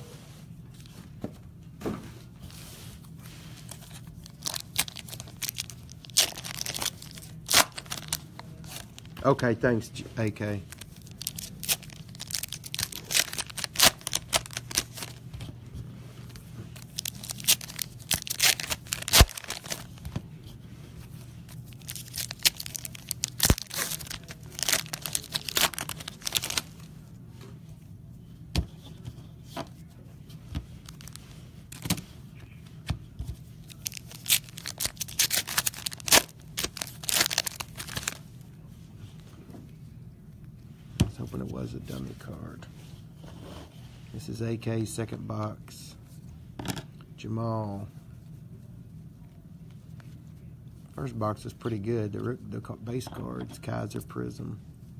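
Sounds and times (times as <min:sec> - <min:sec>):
steady low hum: 0:00.0 - 0:54.9
foil wrappers tearing and crinkling: 0:04.1 - 0:09.1, 0:10.7 - 0:15.2, 0:16.7 - 0:20.0, 0:21.6 - 0:26.9, 0:30.8 - 0:32.0, 0:33.7 - 0:38.2
cards shuffled: 0:16.8 - 0:20.2.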